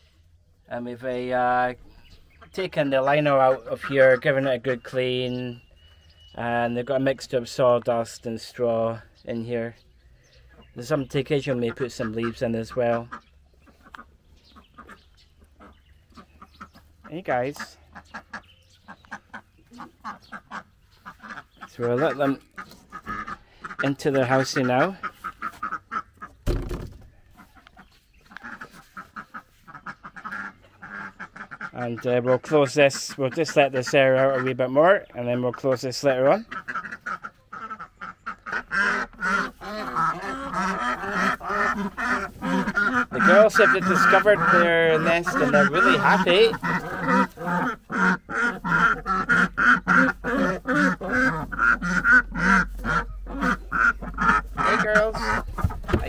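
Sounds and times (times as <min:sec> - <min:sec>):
ducks quacking: 0:00.7 - 0:56.0
loud thump: 0:26.4 - 0:27.2.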